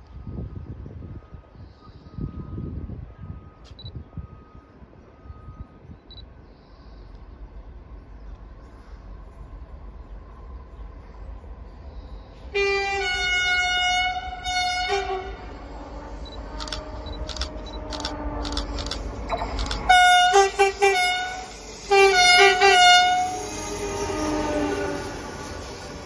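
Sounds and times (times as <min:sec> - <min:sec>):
train rumbling: 0:02.5 - 0:26.0
locomotive horn blasts: 0:12.5 - 0:25.4.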